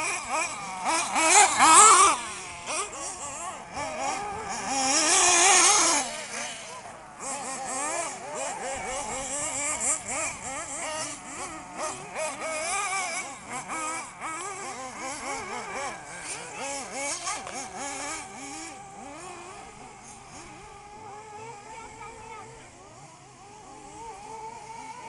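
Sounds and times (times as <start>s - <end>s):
rc car nitro engines revving: 0.0s - 25.0s.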